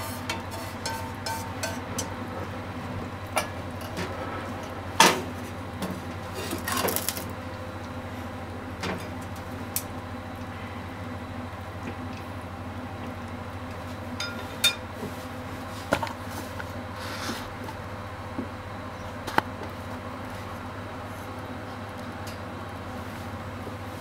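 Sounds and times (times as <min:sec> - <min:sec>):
frying pan clanking on metal grate: 0:00.0 - 0:02.2
pan scraping: 0:00.0 - 0:02.2
steady low hum: 0:00.0 - 0:24.0.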